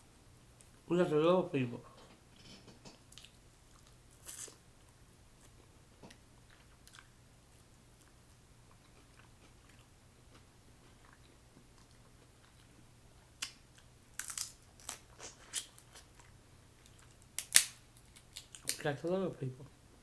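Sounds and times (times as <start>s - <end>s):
crab shells cracking and crunching: 13.4s - 16.2s, 16.8s - 18.8s.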